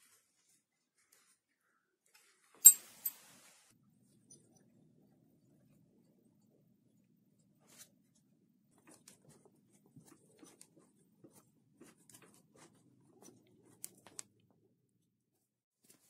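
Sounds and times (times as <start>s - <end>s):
faint small clicks and scratches: 7.6s - 14.7s.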